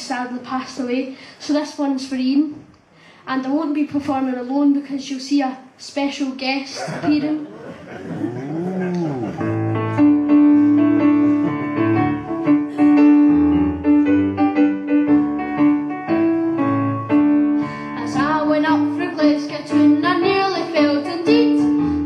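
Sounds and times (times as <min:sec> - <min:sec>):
piano chords: 0:07.8 - 0:22.0
person singing: 0:08.1 - 0:09.6.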